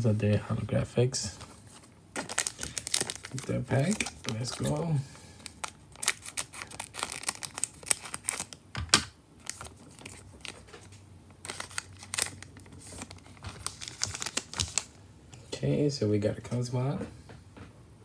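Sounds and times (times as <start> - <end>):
foil wrapper crinkling: 2.2 - 8.6, 9.4 - 15.0.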